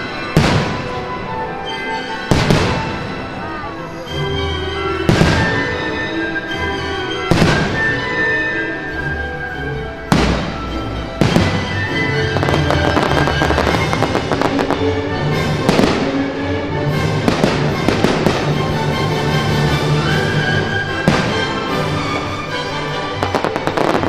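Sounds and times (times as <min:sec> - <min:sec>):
fireworks bangs: 0:00.0 - 0:01.3, 0:02.3 - 0:03.4, 0:05.1 - 0:05.8, 0:07.3 - 0:08.0, 0:10.1 - 0:16.4, 0:17.2 - 0:18.8, 0:20.6 - 0:24.0
fireworks crackling: 0:00.0 - 0:04.2, 0:05.0 - 0:06.4, 0:07.3 - 0:09.0, 0:10.1 - 0:16.4, 0:17.1 - 0:24.0
orchestral music: 0:00.0 - 0:24.0.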